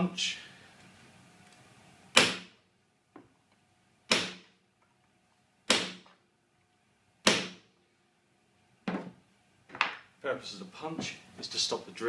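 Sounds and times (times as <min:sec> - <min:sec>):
hammer striking centre punch: 0:02.1 - 0:02.6, 0:04.1 - 0:04.5, 0:05.7 - 0:06.1, 0:07.2 - 0:07.6.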